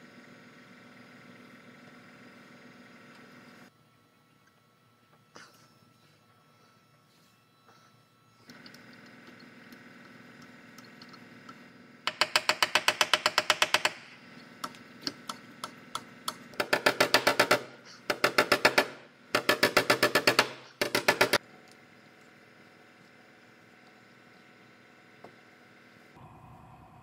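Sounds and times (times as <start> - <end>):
ratchet clicking: 12.1 - 21.4.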